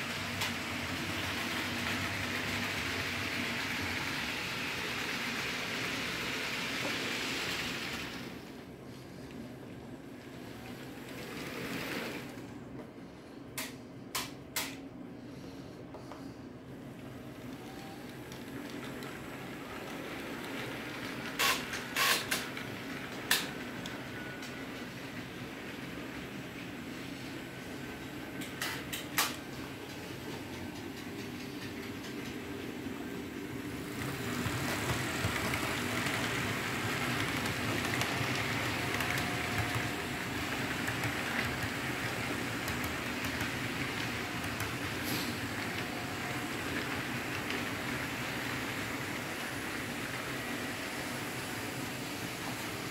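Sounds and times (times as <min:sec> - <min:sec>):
model train rolling hum: 0:00.0 - 0:13.3, 0:15.3 - 0:52.9.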